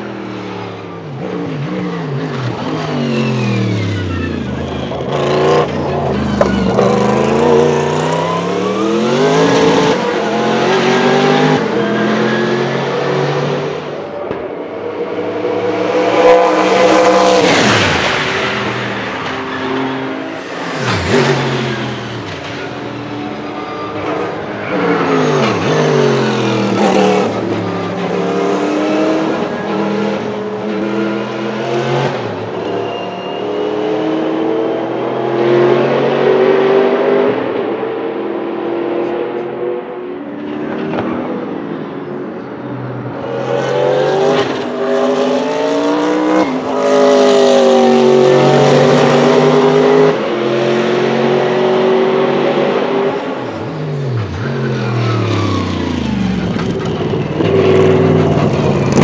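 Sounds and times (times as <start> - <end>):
race car engine upshifting: 1.2 - 34.4, 43.5 - 59.0
race car passing by: 15.1 - 34.6.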